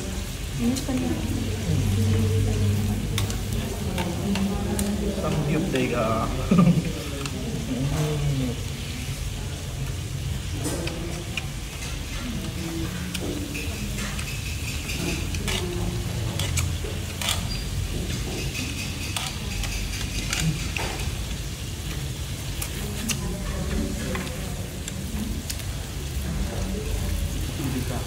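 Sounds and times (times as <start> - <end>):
tongs clicking against pan: 3.2 - 5.0, 10.8 - 21.1.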